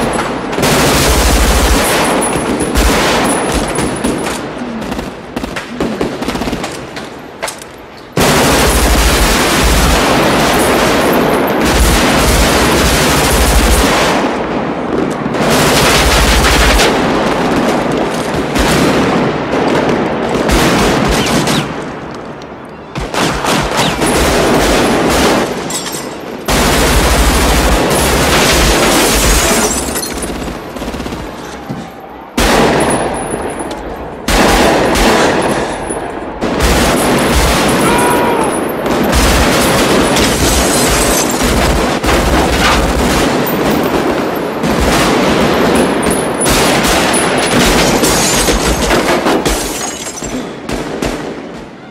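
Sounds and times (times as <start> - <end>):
automatic rifle fire: 0.0 - 7.0, 8.2 - 14.4, 23.0 - 25.7, 34.3 - 35.8, 38.8 - 49.7.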